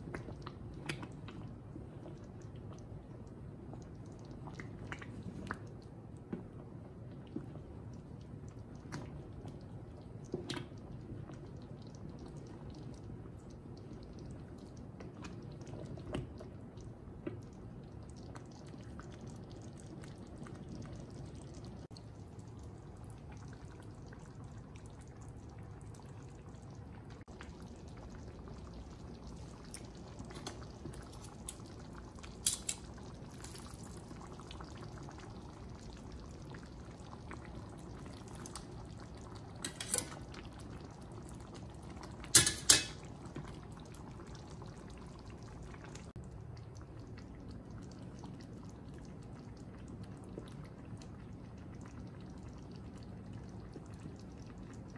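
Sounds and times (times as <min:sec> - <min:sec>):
sauce bubbling in a pot: 0:00.0 - 0:54.9
colander clanking against pot: 0:42.4 - 0:43.0.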